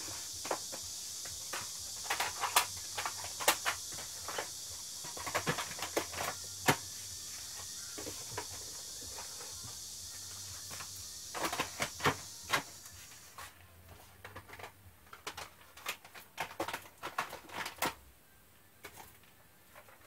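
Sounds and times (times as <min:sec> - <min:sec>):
plastic cassette cases clacking: 0:14.2 - 0:18.0.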